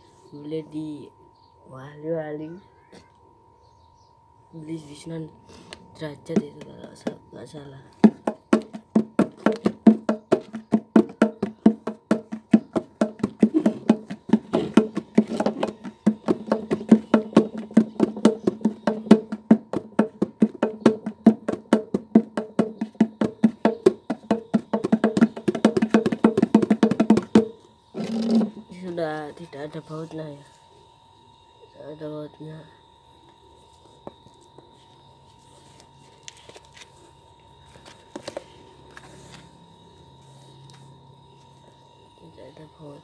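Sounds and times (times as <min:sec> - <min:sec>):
hand drums slaps and tones: 0:08.0 - 0:27.6.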